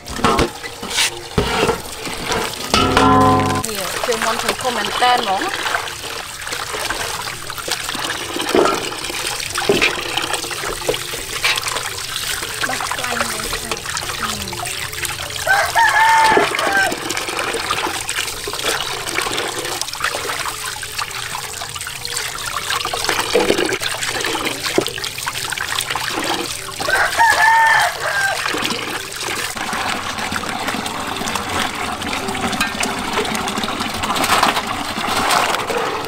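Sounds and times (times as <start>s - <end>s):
water running into metal basin: 0.0s - 36.0s
rooster crowing: 15.4s - 17.0s, 26.8s - 28.5s.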